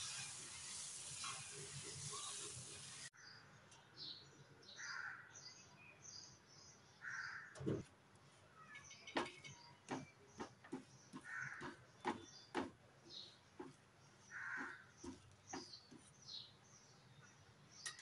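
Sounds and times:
metal spatula scraping griddle: 0.0 - 2.9
birds chirping faintly: 0.6 - 18.0
crow cawing: 4.8 - 5.3, 14.4 - 14.8.

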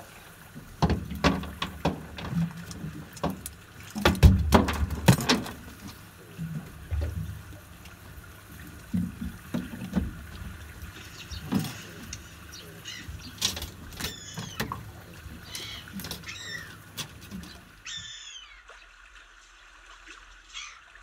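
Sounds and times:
water lapping against boat hull: 0.0 - 21.0
knocks and clatters: 0.8 - 6.0.

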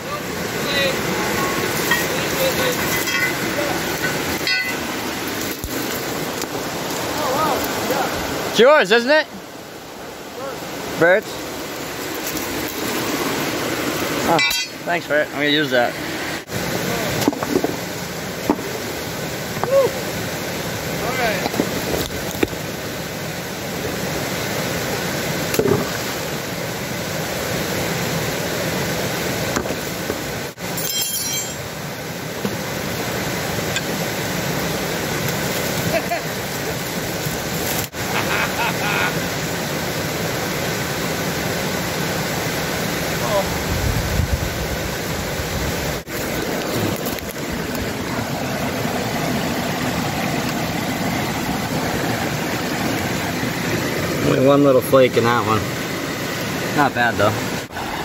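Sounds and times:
creek water rushing over rocks: 0.0 - 58.0
high ringing squeal: 1.3 - 2.2, 2.8 - 4.9, 14.4 - 14.8, 30.8 - 31.7
stones knocking: 17.2 - 17.8, 29.5 - 30.2.

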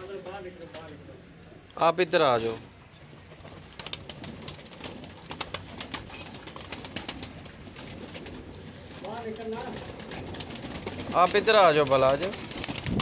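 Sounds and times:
pigeons cooing: 2.8 - 13.0
pigeon wings flapping: 3.1 - 13.0.

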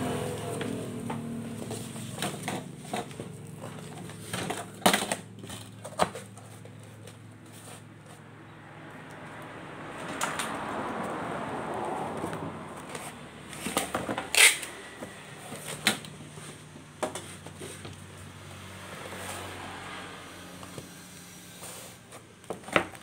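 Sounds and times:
packing tape tearing: 13.5 - 14.8.

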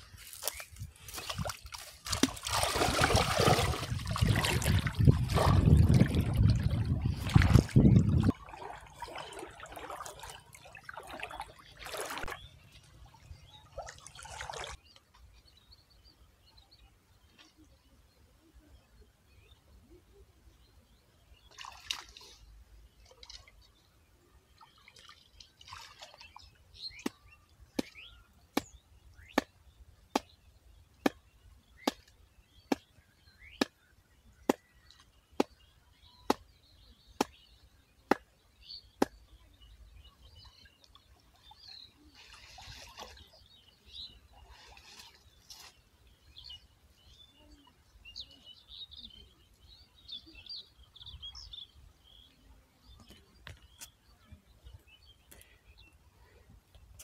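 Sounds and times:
water sloshing and splashing: 0.0 - 14.9, 21.5 - 23.7, 24.6 - 27.2, 40.5 - 46.0
birds chirping: 0.0 - 57.0.

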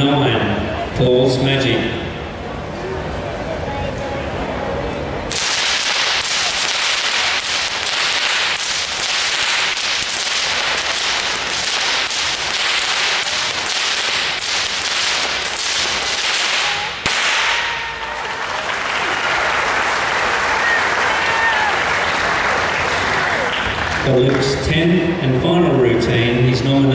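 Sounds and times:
whips cracking: 5.3 - 17.8
audience applause: 16.0 - 24.5.

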